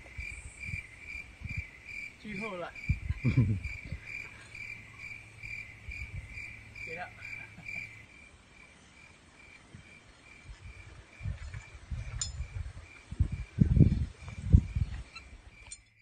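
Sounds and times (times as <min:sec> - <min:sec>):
insect chirping: 0:00.0 - 0:16.0.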